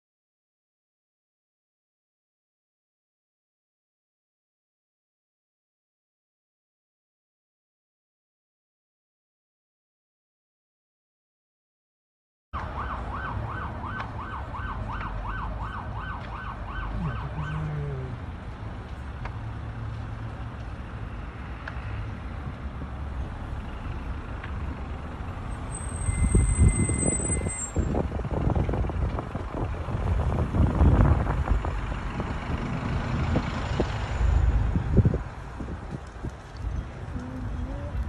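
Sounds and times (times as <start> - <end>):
siren yelping: 12.6 - 18.2
moving vehicle rumble: 12.6 - 38.0.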